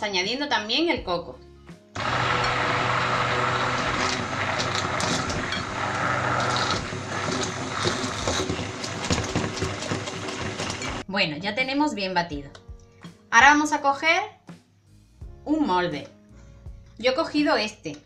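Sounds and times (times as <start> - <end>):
immersion blender humming: 2.0 - 11.0
liquid churning: 2.0 - 11.0.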